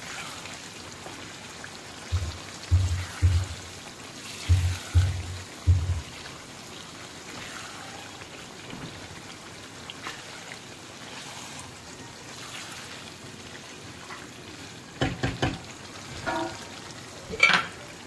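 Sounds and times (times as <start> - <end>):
chicken frying in a pan: 0.0 - 18.0
thumps: 2.1 - 3.6.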